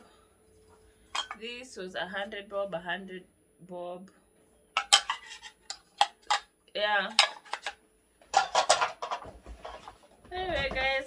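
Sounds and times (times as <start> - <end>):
bowls and plates clattering: 1.1 - 1.4, 4.8 - 6.4, 7.1 - 10.0.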